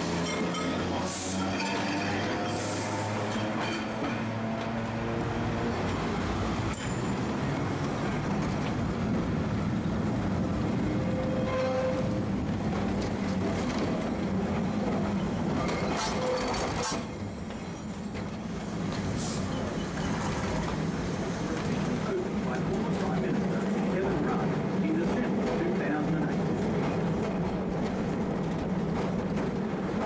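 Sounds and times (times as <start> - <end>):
tram wheels rumbling: 0.0 - 30.0
rail clicks: 10.6 - 30.0
faint rail squeals: 10.8 - 12.2, 15.1 - 20.6.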